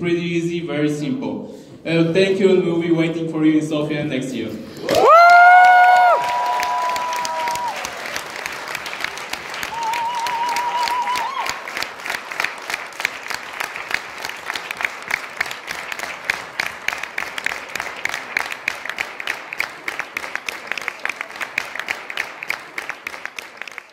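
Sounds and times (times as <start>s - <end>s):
audience applause: 4.8s - 23.9s.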